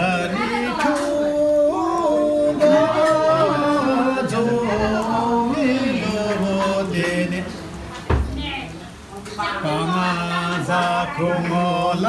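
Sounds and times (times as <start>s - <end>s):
man singing unaccompanied: 0.0s - 7.8s, 9.6s - 12.0s.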